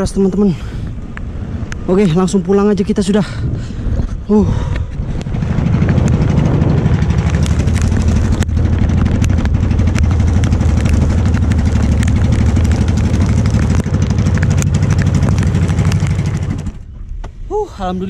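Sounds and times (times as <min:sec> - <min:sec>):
boat engine running: 0:04.9 - 0:17.0
raindrops ticking on boat: 0:06.0 - 0:16.7.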